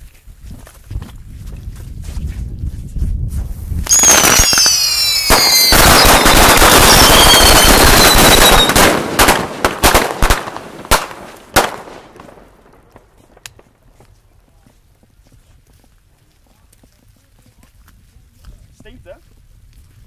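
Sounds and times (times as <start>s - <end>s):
firework crackling: 3.8s - 13.8s
firework whistles falling in pitch: 3.9s - 8.8s.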